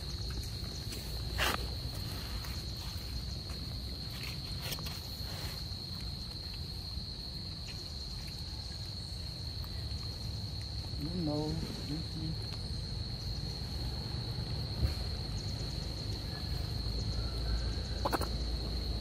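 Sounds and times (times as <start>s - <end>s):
scuffs and rustles on ground: 0.0s - 12.7s.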